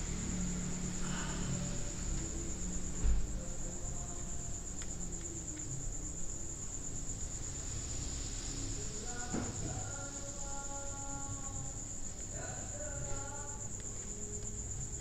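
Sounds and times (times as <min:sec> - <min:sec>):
low thump: 0:03.0 - 0:03.5
faint clicks: 0:04.8 - 0:05.7.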